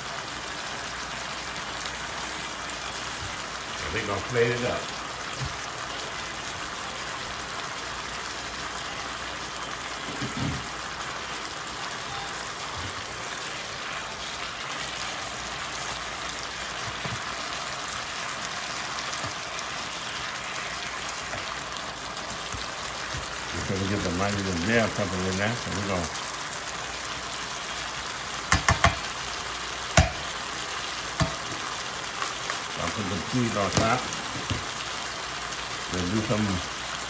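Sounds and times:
chicken sizzling in skillet: 0.0 - 37.0
spatula stirring: 31.2 - 31.6.

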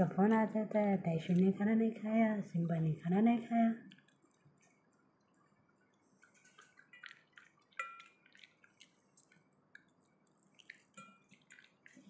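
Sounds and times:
dog chewing and licking: 3.9 - 12.0.

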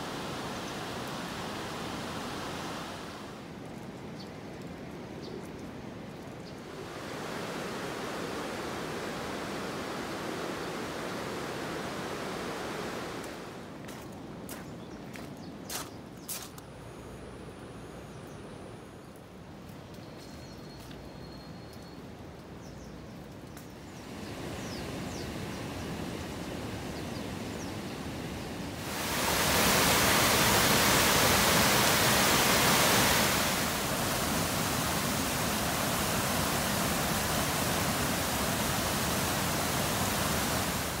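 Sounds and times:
water rushing over weir: 0.0 - 3.5, 6.6 - 13.8, 28.3 - 41.0
soft steady hiss: 0.0 - 41.0.

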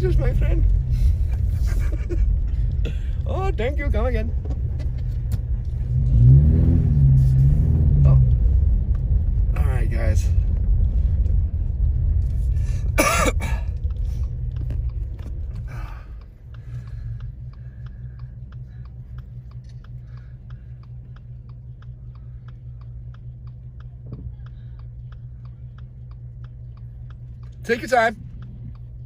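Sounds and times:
engine idling: 0.0 - 6.2, 7.2 - 29.0
turn signal ticking: 0.0 - 29.0
tyre and road rumble: 0.0 - 29.0
person clearing throat: 13.0 - 13.6.

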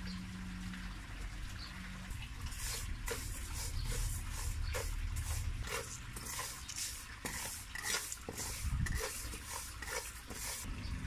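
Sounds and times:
spatula scraping rice in wok: 2.5 - 10.7.

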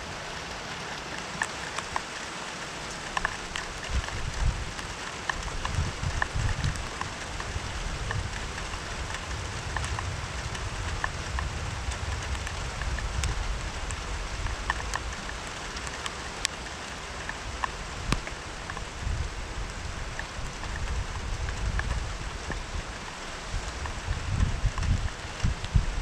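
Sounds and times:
raindrops ticking on a surface: 0.0 - 26.0
steady rainfall: 0.0 - 26.0
low rumble: 5.7 - 15.5.

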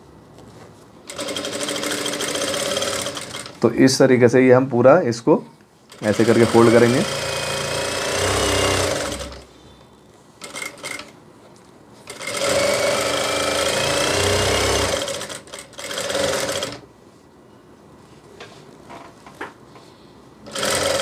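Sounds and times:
sewing machine stitching: 1.1 - 3.6, 5.9 - 9.5, 12.1 - 16.8, 20.5 - 21.0.

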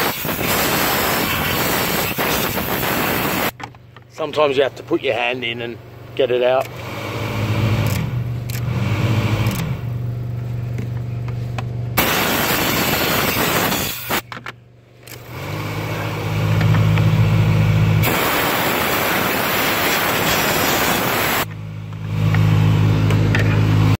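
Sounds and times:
compressed air bursts: 0.0 - 3.5, 12.0 - 14.2, 18.0 - 21.5.

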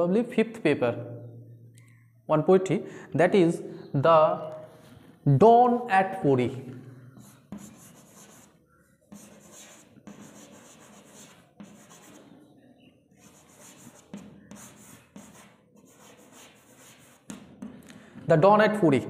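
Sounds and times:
chalk scratching on chalkboard: 7.2 - 12.4, 13.1 - 17.7.

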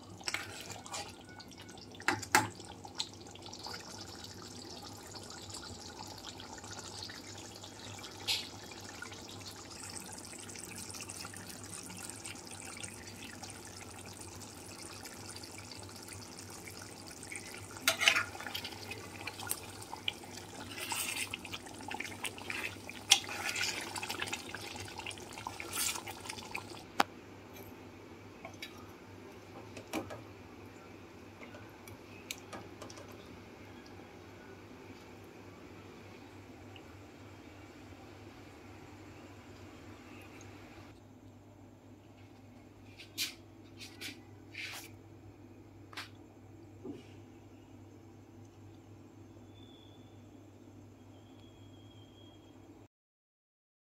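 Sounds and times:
thick gravy bubbling in a pot: 0.0 - 26.9.

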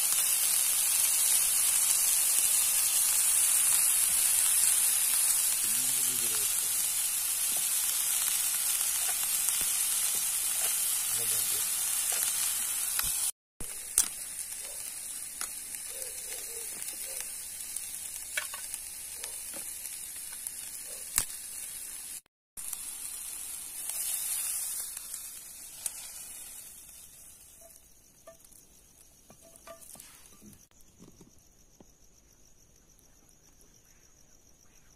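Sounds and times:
vegetables sizzling in oil: 0.0 - 30.8.

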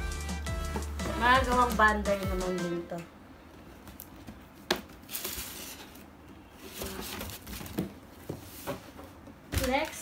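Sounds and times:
soft rustling of packaging: 3.6 - 10.0.

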